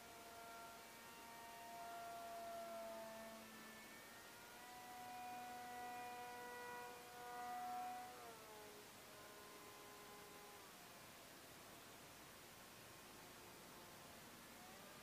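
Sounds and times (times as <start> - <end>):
model airplane motor whine: 0.0 - 10.8.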